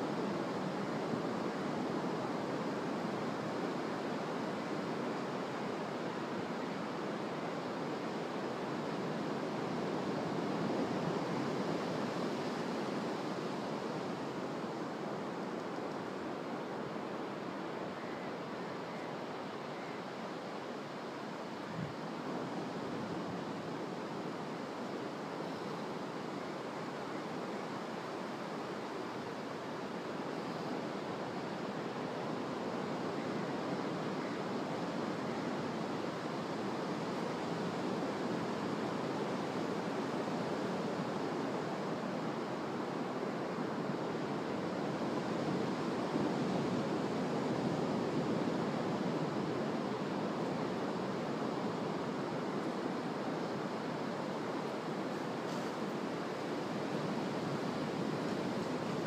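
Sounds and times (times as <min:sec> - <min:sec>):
ocean surf washing onto beach: 0:20.5 - 0:59.0.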